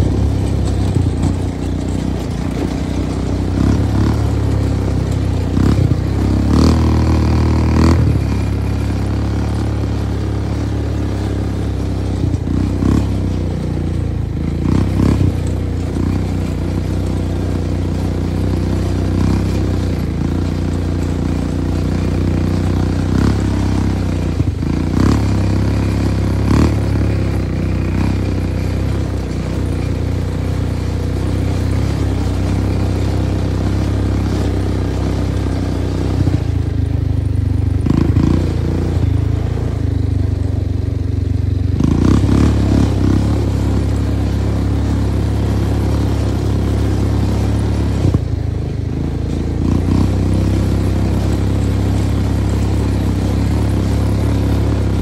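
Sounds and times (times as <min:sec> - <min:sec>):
clatters and knocks: 0:00.0 - 0:05.8
vehicle engine running: 0:00.0 - 0:55.0.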